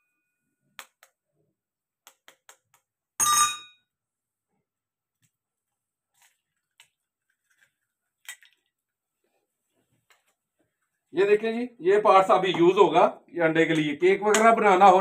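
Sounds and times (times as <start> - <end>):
ringing glass clink: 3.2 - 3.8.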